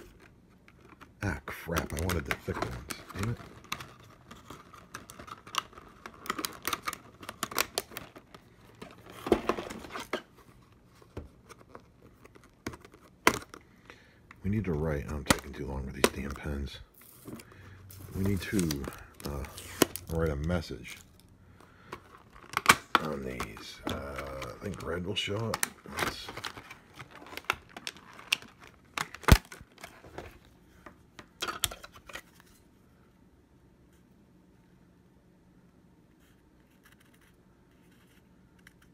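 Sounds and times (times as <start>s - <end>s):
stiff plastic crackling and clicking: 0.0s - 10.2s, 18.2s - 30.4s.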